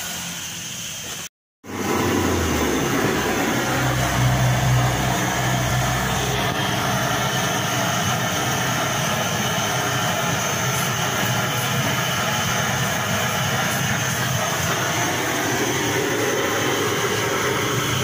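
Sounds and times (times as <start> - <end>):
blowtorch flame rushing: 0.0 - 18.0
low hum: 1.7 - 11.3.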